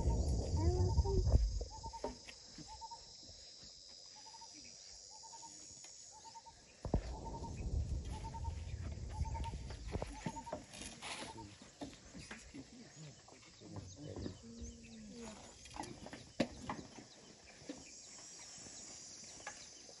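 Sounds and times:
birds chirping: 0:04.2 - 0:20.0.

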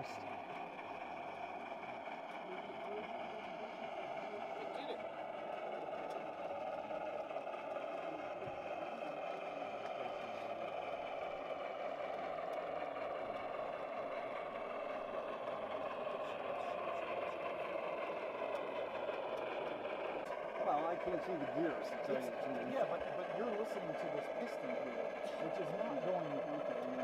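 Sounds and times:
model train wheels rumbling: 0:00.0 - 0:27.0.

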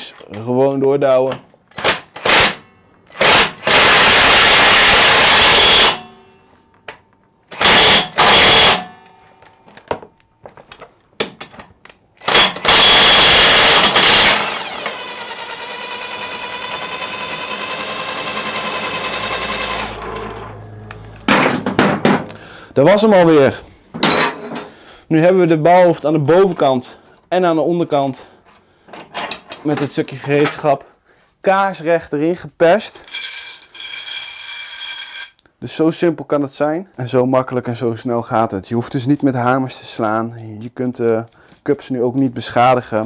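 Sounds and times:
impact wrench hammering: 0:01.7 - 0:06.3, 0:07.5 - 0:09.1, 0:12.2 - 0:22.4
impact wrench whine: 0:01.7 - 0:10.1, 0:12.2 - 0:22.6.

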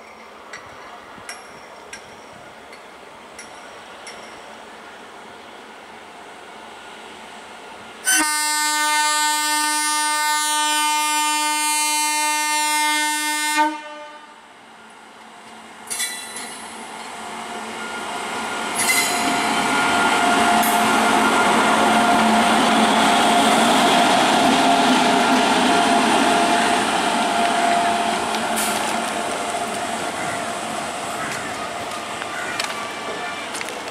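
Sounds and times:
train passing rumble: 0:00.0 - 0:33.9
locomotive horn blast: 0:08.1 - 0:14.4.

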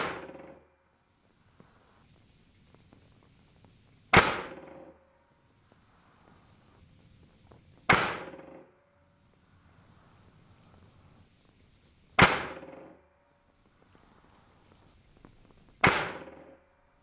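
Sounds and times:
air rifle shots: 0:00.0 - 0:00.6, 0:04.1 - 0:05.0, 0:07.9 - 0:08.8, 0:12.2 - 0:13.0, 0:15.8 - 0:16.7.

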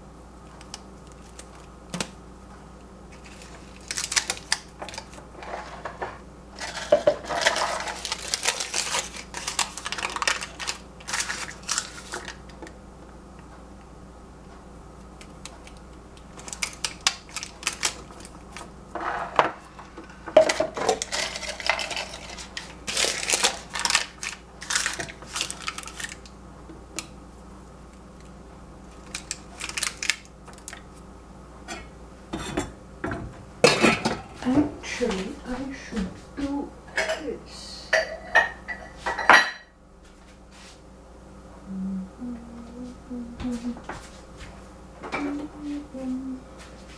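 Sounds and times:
paper crinkling: 0:00.6 - 0:02.1, 0:03.1 - 0:06.0, 0:06.6 - 0:12.6, 0:15.4 - 0:19.3, 0:20.9 - 0:26.3, 0:28.9 - 0:30.9.

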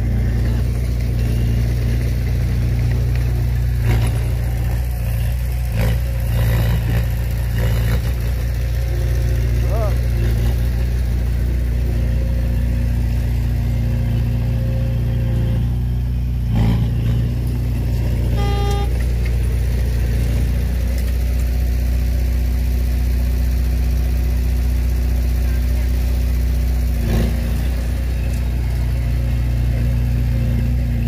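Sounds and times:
diesel engine running: 0:00.0 - 0:31.0
short beep: 0:18.3 - 0:19.1.

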